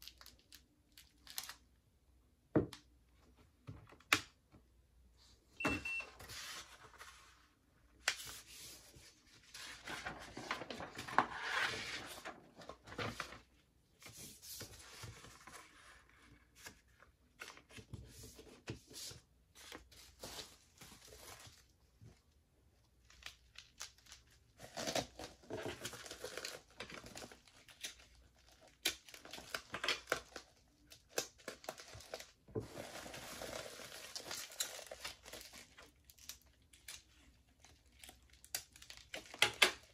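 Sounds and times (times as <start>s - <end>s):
bubble wrap crinkling: 0.0s - 1.8s, 22.9s - 39.9s
paper sheet rustling: 6.1s - 16.8s.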